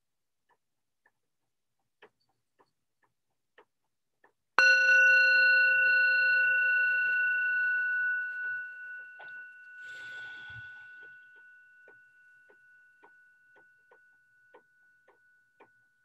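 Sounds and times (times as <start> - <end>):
singing bowl struck and ringing: 4.6 - 16.0.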